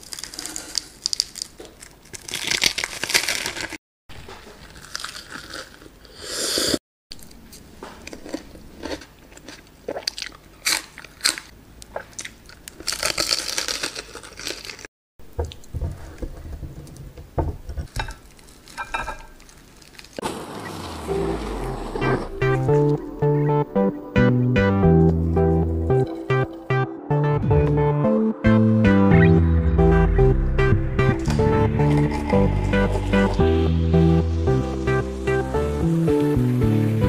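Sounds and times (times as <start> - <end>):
crunchy biting and chewing: 0.0 - 6.2, 7.1 - 14.9.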